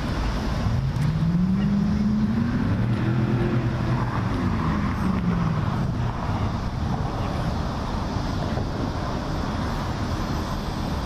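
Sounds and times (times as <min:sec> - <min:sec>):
vehicle engine pulling away: 0:00.0 - 0:06.0
city traffic noise: 0:00.0 - 0:11.0.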